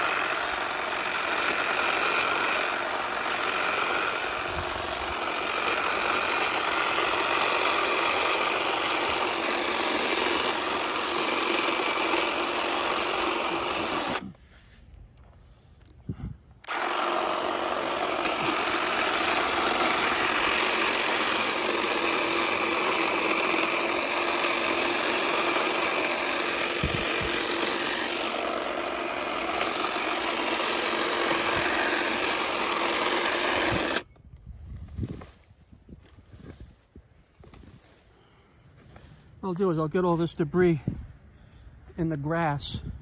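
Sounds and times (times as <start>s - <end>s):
electric hedge trimmer running: 0.0s - 14.3s, 16.6s - 34.1s.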